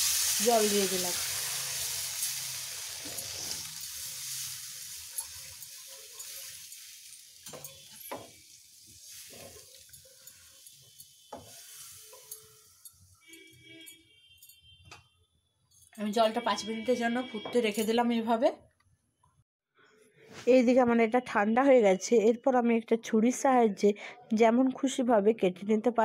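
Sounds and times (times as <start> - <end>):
spice paste sizzling in pan: 0.0 - 12.9.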